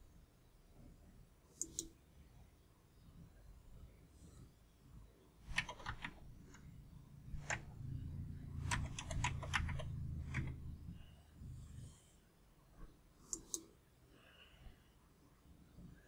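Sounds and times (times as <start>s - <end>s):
low steady hum: 0.0s - 16.0s
computer keyboard keystrokes: 5.5s - 6.2s, 7.4s - 7.7s, 8.6s - 10.7s.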